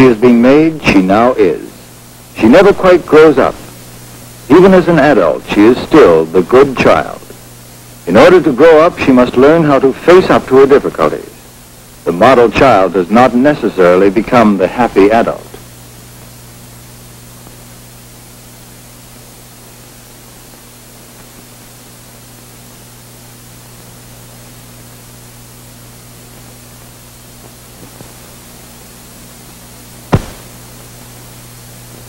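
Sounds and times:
film soundtrack hiss: 0.0s - 32.0s
low hum: 30.0s - 31.1s.

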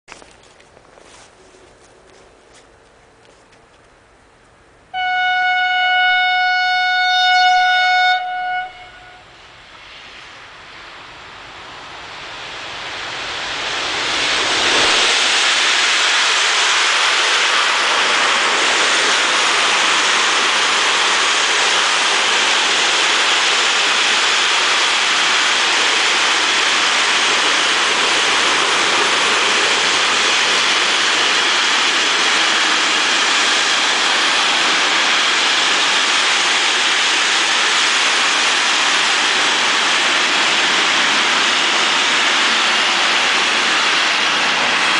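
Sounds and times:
train wheels on rail: 0.1s - 44.9s
locomotive horn blast: 4.9s - 9.3s.

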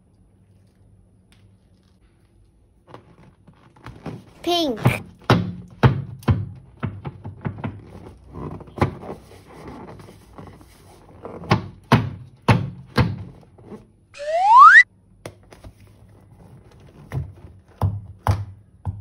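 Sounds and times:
rising whistle-like tone: 14.2s - 14.8s.

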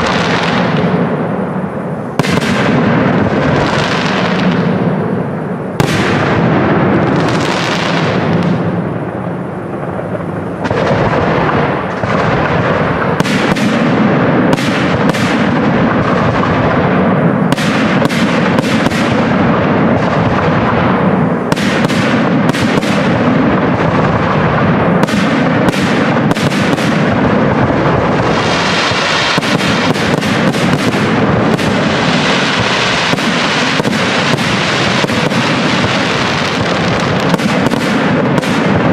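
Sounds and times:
continuous rumble: 0.0s - 38.9s
firework crackling: 0.0s - 38.9s
firework shells bursting: 9.8s - 38.9s.

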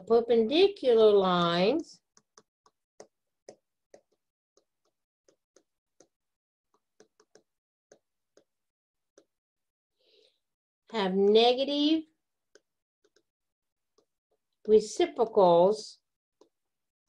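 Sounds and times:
stylus tapping on tablet screen: 2.0s - 9.4s, 12.4s - 15.5s, 16.3s - 16.7s.

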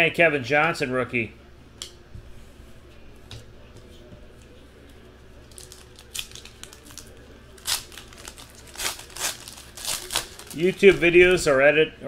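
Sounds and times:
low steady hum: 0.0s - 12.0s
foil wrapper crinkling and tearing: 5.4s - 11.0s.

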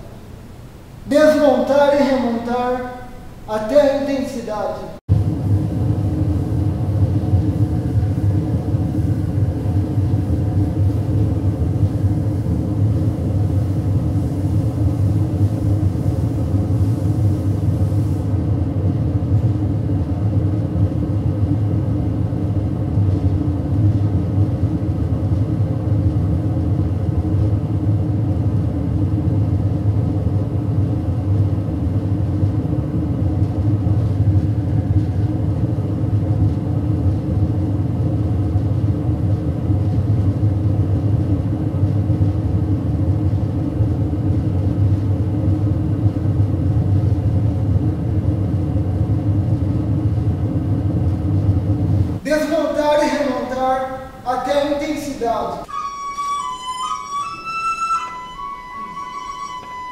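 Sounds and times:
faint high hiss: 0.0s - 5.0s.

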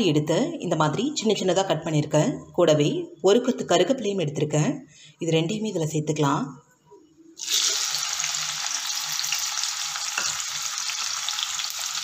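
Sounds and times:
food sizzling in hot fat: 7.4s - 12.0s.

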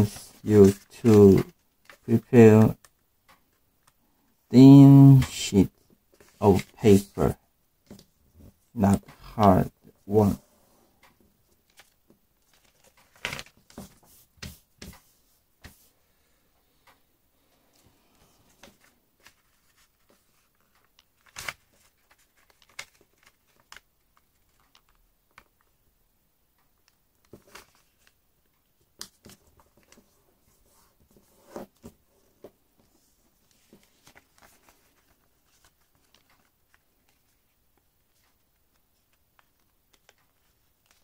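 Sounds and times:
paper rustling and crackling: 0.0s - 2.8s, 11.6s - 15.0s, 18.5s - 25.6s, 27.2s - 28.2s, 29.0s - 41.0s.

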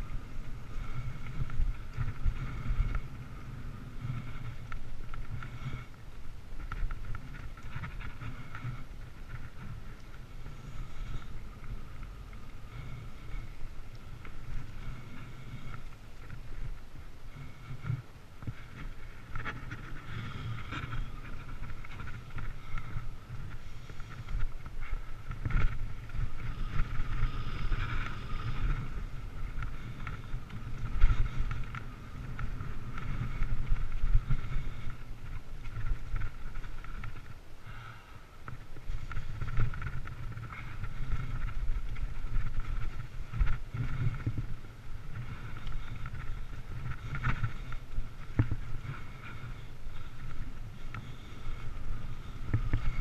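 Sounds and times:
bike rattling over bumps: 0.0s - 53.0s
wind rumbling on microphone: 0.0s - 53.0s
steady high whir: 17.2s - 35.1s.

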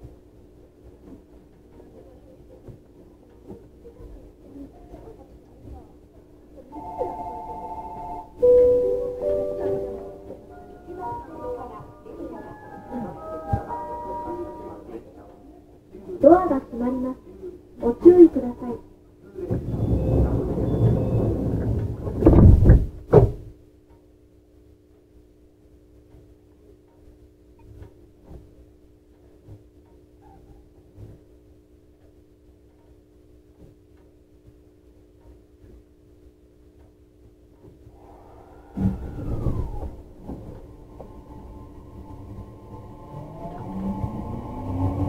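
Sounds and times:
train low steady hum: 3.2s - 22.4s, 37.8s - 45.0s
sliding train doors thudding shut: 19.5s - 23.4s
loud thump and rumble: 19.5s - 23.5s, 38.6s - 41.4s.

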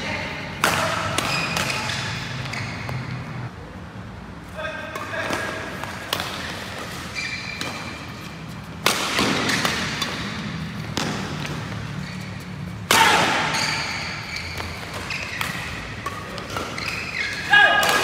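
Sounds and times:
rackets hitting shuttlecock: 0.0s - 3.4s, 4.8s - 18.0s
shoe squeaks on court floor: 1.1s - 3.4s, 6.4s - 8.4s, 11.8s - 12.7s, 13.3s - 17.5s.

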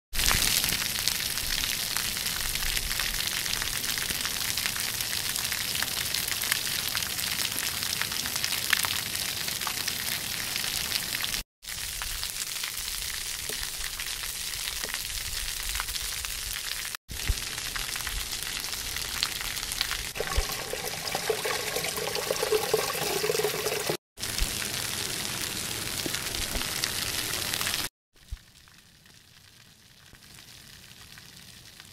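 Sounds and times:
fountain water splashing on stone: 0.2s - 29.2s.

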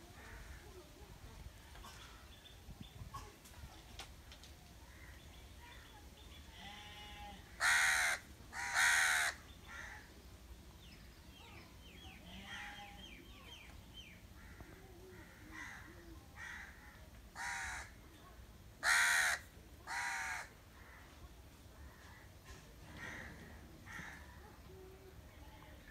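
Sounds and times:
crow cawing: 7.6s - 10.1s, 14.4s - 17.9s, 18.8s - 21.1s, 23.0s - 24.4s.

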